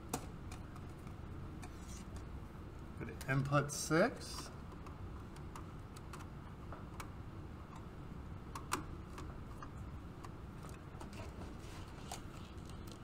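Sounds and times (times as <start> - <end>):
wire clicking on terminals: 4.3 - 11.2.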